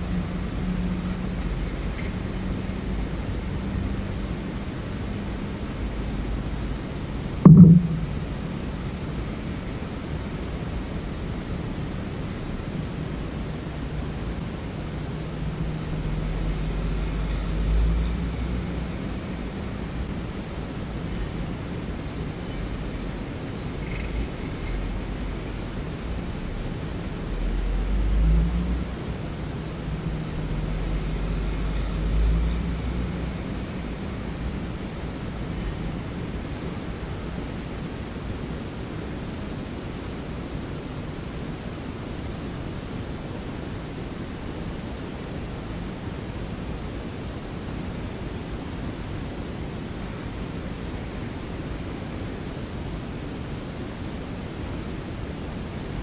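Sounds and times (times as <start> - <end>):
car interior rumble and hiss: 0.0 - 56.0
low hum: 5.9 - 9.6.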